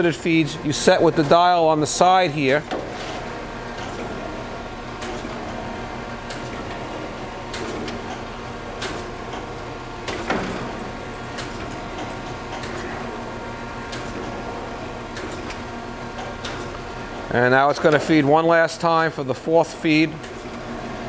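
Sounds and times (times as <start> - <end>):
grinder machine hum: 0.0 - 19.0
machine table clicks and knocks: 7.5 - 13.0.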